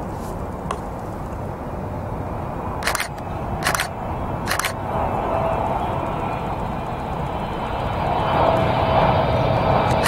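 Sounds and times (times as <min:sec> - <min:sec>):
airplane engine rumble: 0:00.0 - 0:10.0
camera shutter clicks: 0:02.8 - 0:03.9, 0:04.5 - 0:04.8.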